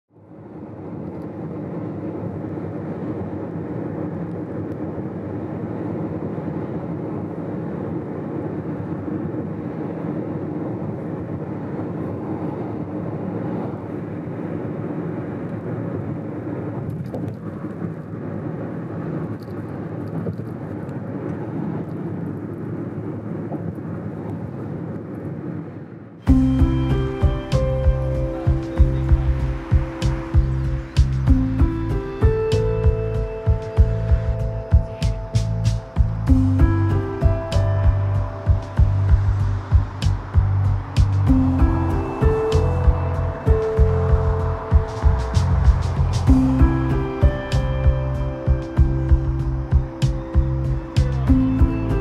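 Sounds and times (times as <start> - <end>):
music: 26.2 - 52.0
car road noise and engine hum: 26.3 - 52.0.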